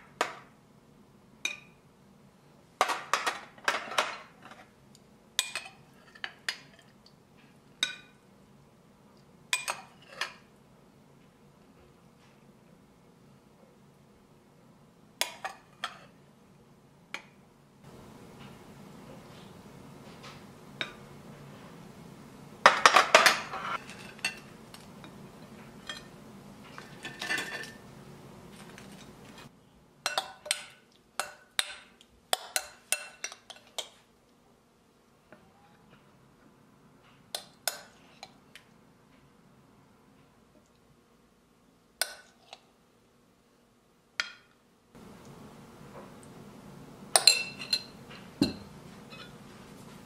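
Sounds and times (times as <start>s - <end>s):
tongs and plates clattering: 2.8s - 4.7s, 5.4s - 7.0s, 9.5s - 10.5s, 22.7s - 27.8s, 47.1s - 49.4s.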